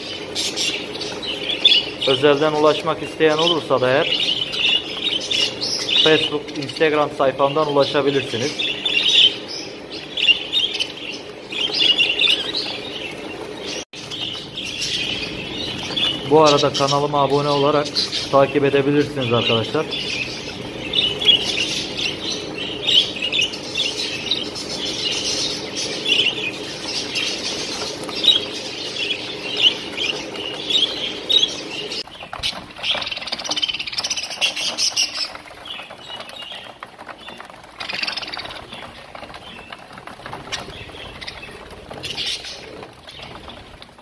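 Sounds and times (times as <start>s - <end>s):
budgerigars chattering and chirping: 0.0s - 44.0s
scratching: 0.0s - 44.0s
wings flapping: 0.0s - 44.0s.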